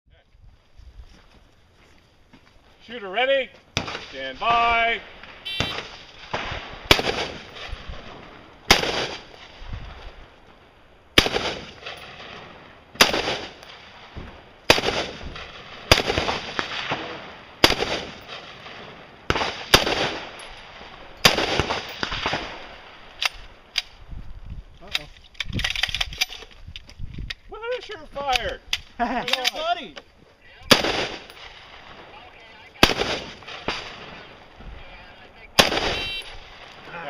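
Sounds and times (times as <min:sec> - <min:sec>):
rifle shots with echo: 0:03.8 - 0:09.4, 0:11.2 - 0:23.6, 0:30.7 - 0:34.5, 0:35.5 - 0:37.0.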